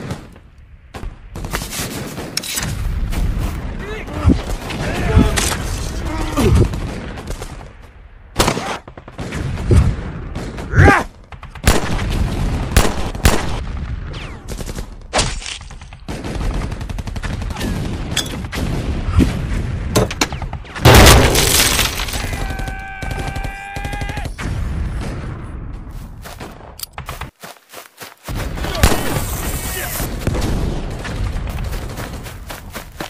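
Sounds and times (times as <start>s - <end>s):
rifle and machine-gun fire: 8.4s - 15.1s, 15.9s - 25.4s, 28.4s - 32.7s
loud explosion: 24.3s - 25.9s.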